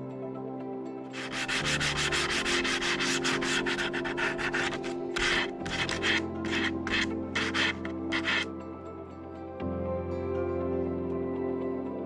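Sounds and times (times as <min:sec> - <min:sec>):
soft background music: 0:00.0 - 0:12.0
sandpaper rubbing on wood: 0:01.2 - 0:08.5.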